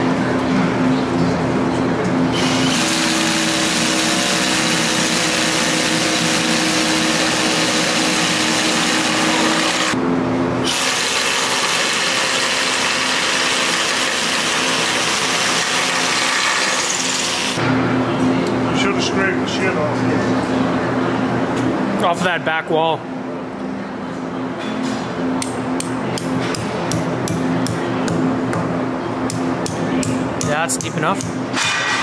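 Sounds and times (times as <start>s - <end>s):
hammer drill boring into concrete: 2.4s - 10.0s, 10.7s - 17.6s.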